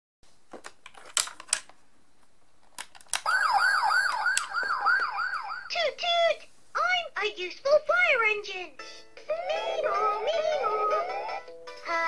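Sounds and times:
plastic clicks: 0:00.5 - 0:01.8, 0:02.6 - 0:03.3
electronic toy siren: 0:03.2 - 0:05.8.

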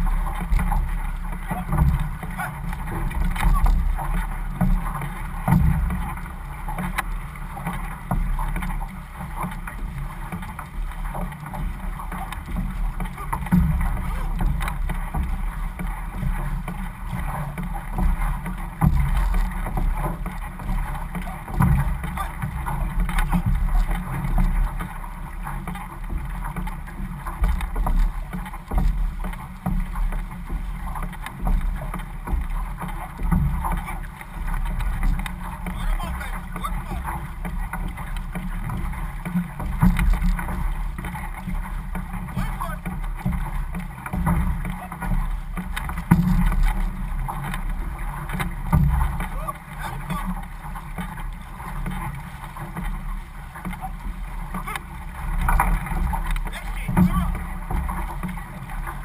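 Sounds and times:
paddles splashing water: 0:00.0 - 0:59.0
water rushing along hull: 0:00.0 - 0:59.0
wind rumble on microphone: 0:00.0 - 0:59.0.

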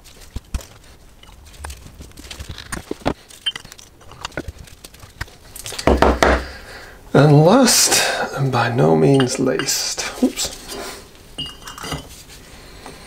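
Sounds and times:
metal parts clicking and knocking: 0:00.5 - 0:06.1.

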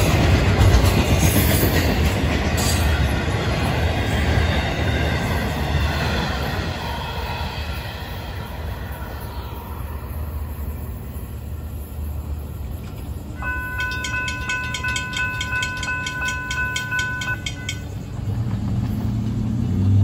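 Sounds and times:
crossing bell dinging rapidly: 0:13.4 - 0:18.4.

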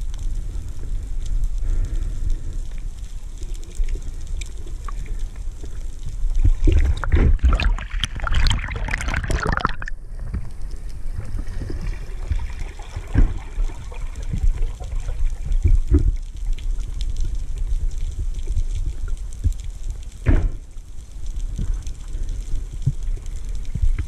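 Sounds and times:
muffled underwater rumble: 0:00.0 - 0:24.0
bubbling and splashing: 0:01.6 - 0:20.4.

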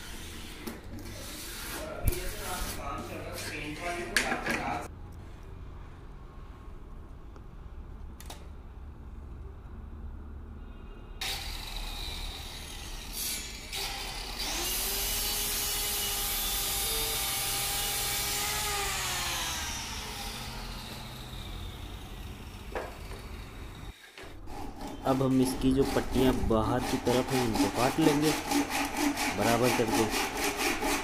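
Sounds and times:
circular saw cutting plywood: 0:11.2 - 0:31.0.

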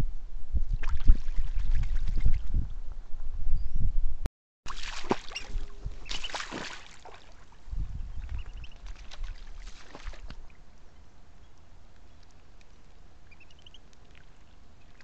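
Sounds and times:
ducks splashing in water: 0:04.7 - 0:07.6, 0:08.2 - 0:10.6.

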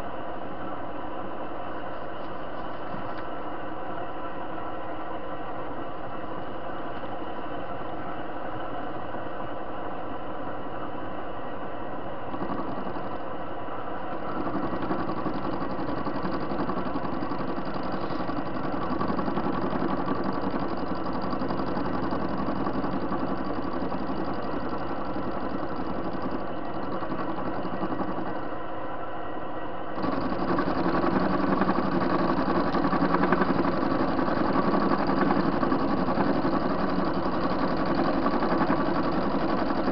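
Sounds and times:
lathe motor humming: 0:12.3 - 0:13.3, 0:14.0 - 0:28.5, 0:30.0 - 0:39.9.

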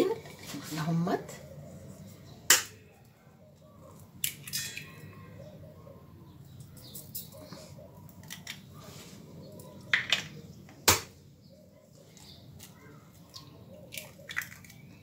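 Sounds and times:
eggs cracking against metal bowl: 0:02.5 - 0:02.9, 0:04.0 - 0:05.1, 0:08.1 - 0:08.7, 0:12.2 - 0:15.0.

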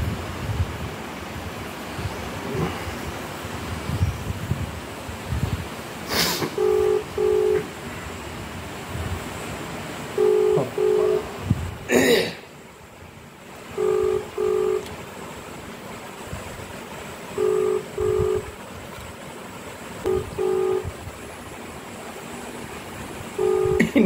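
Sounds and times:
phone ringback tone: 0:06.5 - 0:07.7, 0:10.2 - 0:11.4, 0:13.7 - 0:15.0, 0:17.4 - 0:18.5, 0:20.0 - 0:21.0, 0:23.4 - 0:24.0.

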